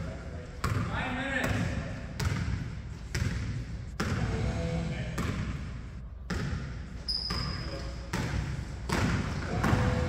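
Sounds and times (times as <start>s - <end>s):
basketball bouncing on hardwood floor: 2.2s - 4.3s, 6.3s - 10.0s
shoe squeak: 7.0s - 8.1s.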